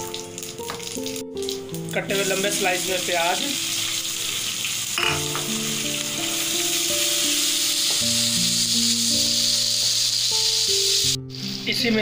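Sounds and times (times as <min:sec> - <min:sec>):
background music with low notes: 0:00.0 - 0:12.0
onions sizzling in hot oil: 0:00.0 - 0:12.0.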